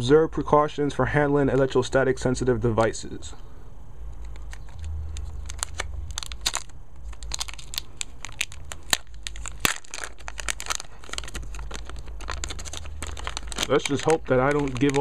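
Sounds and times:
plastic bag crinkling and tearing: 4.2 - 15.0.

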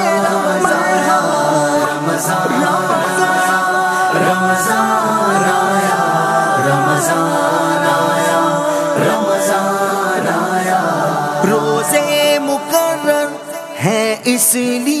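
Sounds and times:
voices singing in harmony: 0.0 - 15.0.

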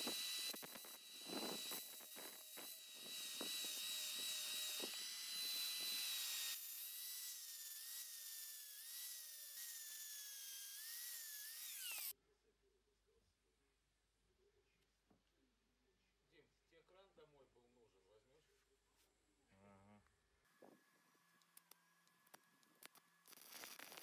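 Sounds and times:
angle grinder scraping metal: 0.0 - 12.1, 22.9 - 24.0.

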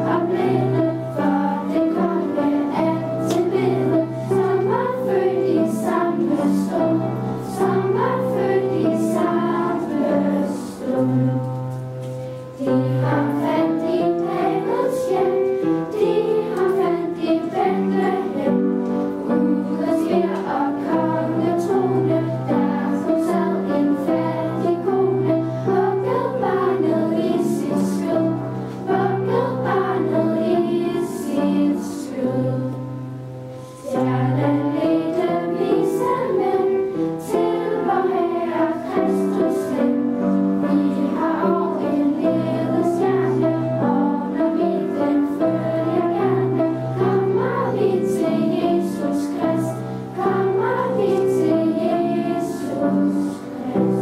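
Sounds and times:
girls choir singing: 0.0 - 54.0.

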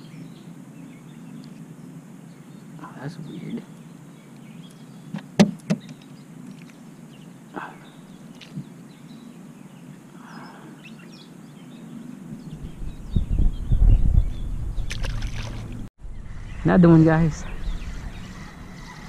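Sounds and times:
low buffeting rumble on microphone: 12.3 - 19.0.

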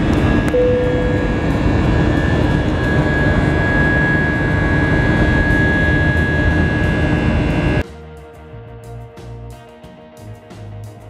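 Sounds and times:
jet cabin engine roar: 0.0 - 7.8
thin high whine: 0.0 - 7.8.

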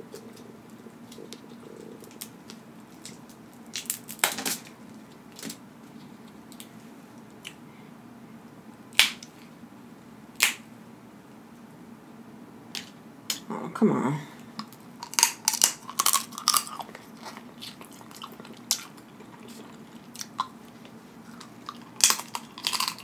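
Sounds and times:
crab shells cracking: 1.1 - 4.7, 14.6 - 23.0.

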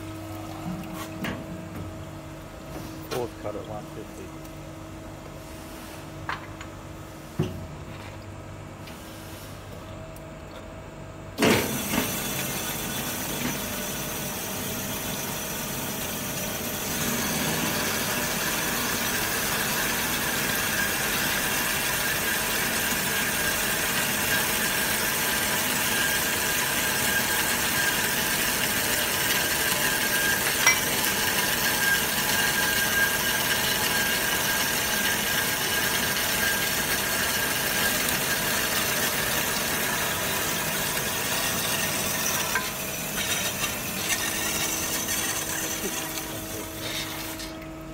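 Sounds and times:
metal band saw cutting steel: 14.9 - 47.5.

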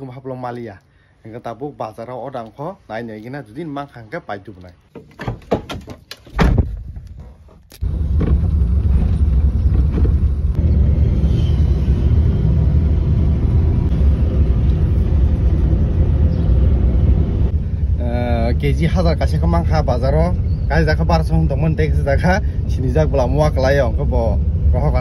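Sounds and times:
car driving rumble from inside: 7.8 - 20.7.

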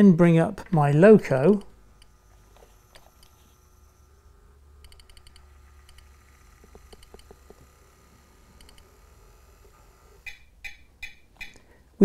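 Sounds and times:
model locomotive humming: 1.9 - 10.3.

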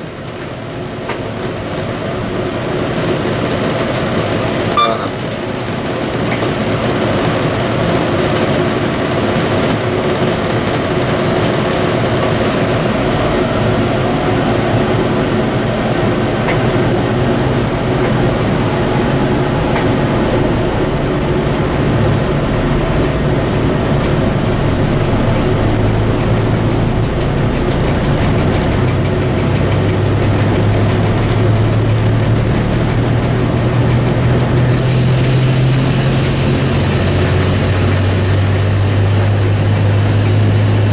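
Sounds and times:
diesel locomotive engine: 0.0 - 40.9
wheel and rail noise: 0.0 - 40.9.

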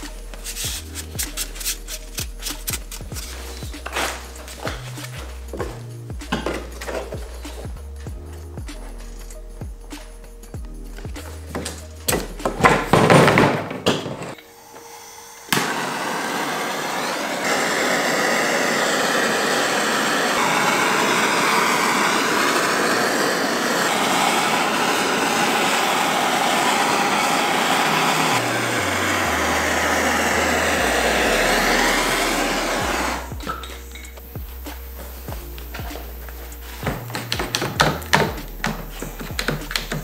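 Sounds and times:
clattering handling noise: 3.8 - 7.2
gas torch hissing: 14.3 - 40.0.

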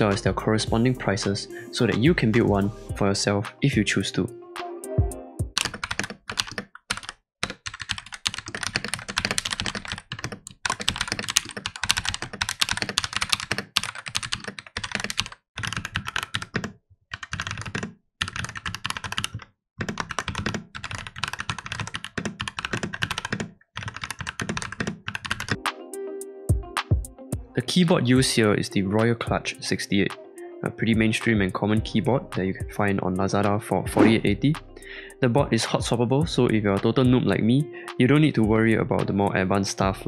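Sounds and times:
fast typing on mechanical keyboard: 5.5 - 25.6.

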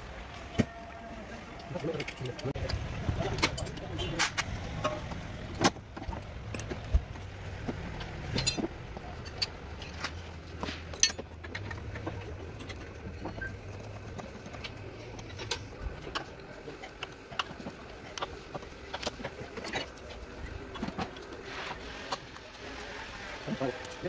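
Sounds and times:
tools knocking and clinking: 1.8 - 19.9.

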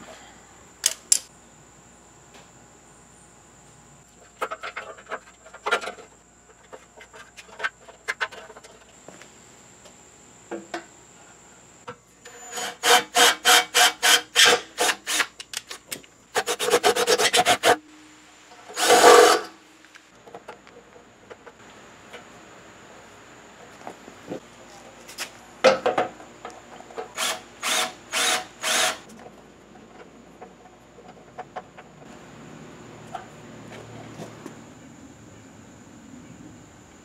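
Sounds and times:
parts being handled: 0.8 - 1.3.

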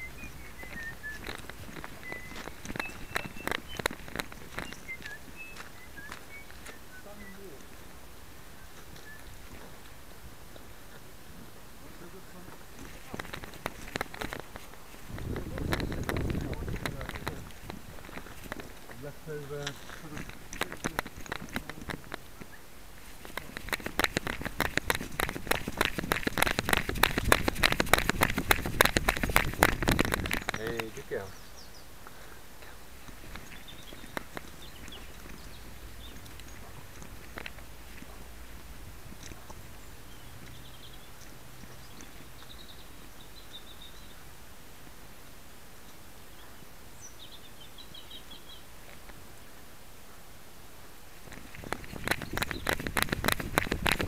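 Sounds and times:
camera knocking and rubbing: 0.0 - 5.1, 12.8 - 31.2, 33.0 - 39.6, 51.2 - 54.0
bird chirping: 0.0 - 44.4, 45.8 - 49.6, 51.2 - 54.0
faint ticks and rustles: 0.0 - 54.0
steady microphone hiss: 0.0 - 54.0.

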